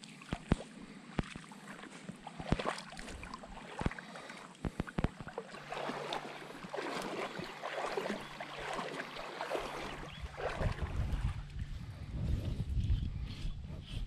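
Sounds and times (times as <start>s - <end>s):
footsteps wading through water: 0.0s - 13.7s
low rumble: 10.0s - 14.0s.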